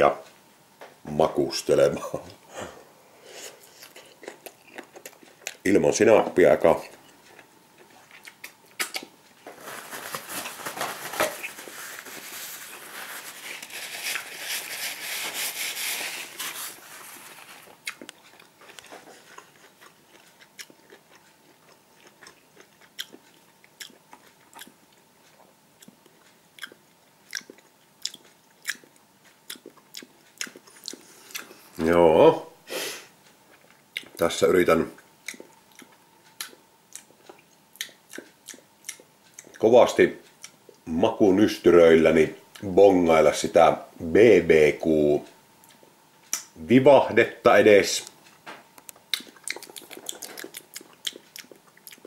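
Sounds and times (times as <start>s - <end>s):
person chewing crackly food: 3.5s - 31.8s, 33.2s - 34.3s, 34.9s - 40.9s, 48.0s - 52.0s
wet mouth clicks: 8.1s - 9.2s, 48.9s - 52.0s.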